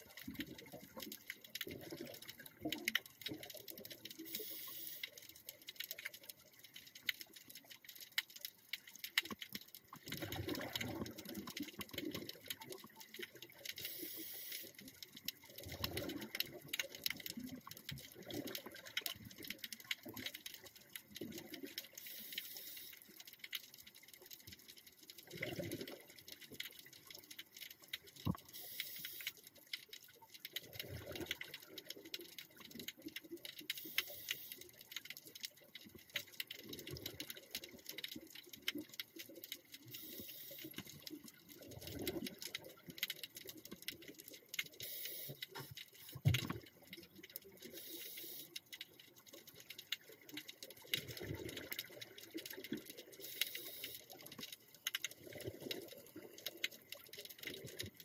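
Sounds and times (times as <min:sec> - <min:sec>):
crackle of small clicks: 0:00.0 - 0:58.0
regulator inhale hiss: 0:04.3 - 0:05.1, 0:13.8 - 0:14.8, 0:22.0 - 0:23.0, 0:28.5 - 0:29.4, 0:33.9 - 0:34.6, 0:40.0 - 0:40.8, 0:44.8 - 0:45.7, 0:47.7 - 0:48.6, 0:53.2 - 0:54.1
exhaled bubbles underwater: 0:10.0 - 0:14.1, 0:15.4 - 0:20.3, 0:25.2 - 0:26.3, 0:30.6 - 0:32.8, 0:36.6 - 0:44.0, 0:49.6 - 0:54.3.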